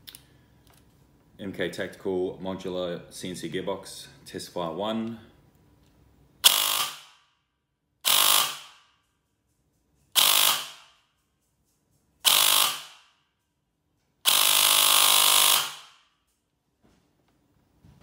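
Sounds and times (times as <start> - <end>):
airsoft gearbox firing bursts: 8.0 - 8.8, 10.2 - 10.9, 12.2 - 13.0, 14.3 - 16.0.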